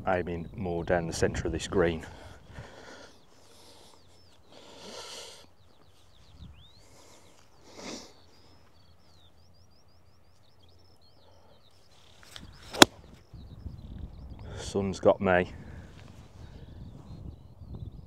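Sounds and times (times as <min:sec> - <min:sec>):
small birds chirping: 0:00.0 - 0:18.0
golf club striking ball: 0:12.7 - 0:13.0.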